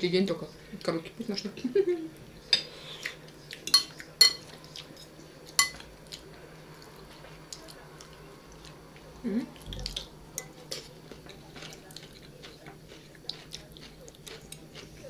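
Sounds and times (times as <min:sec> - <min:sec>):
cutlery clinking on plates: 0:03.6 - 0:05.9.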